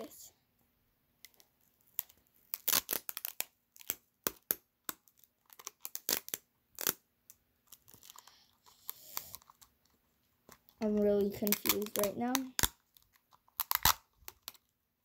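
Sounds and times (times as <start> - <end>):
sticky tape ripping off roll: 1.9 - 4.6, 5.6 - 7.0, 13.6 - 14.6.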